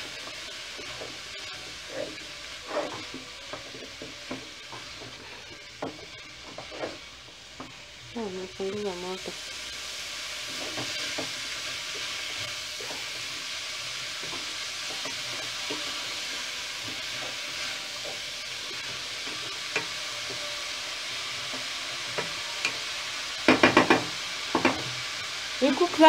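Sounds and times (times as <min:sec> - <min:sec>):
vegetables sizzling in a pot: 0:00.0 - 0:26.0
wooden spoon scraping a pot: 0:01.8 - 0:07.1.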